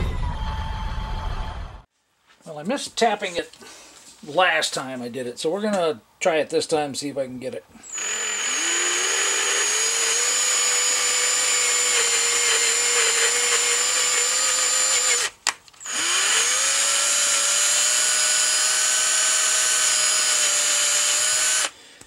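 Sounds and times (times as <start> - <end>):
power drill motor whining: 7.8 - 21.8.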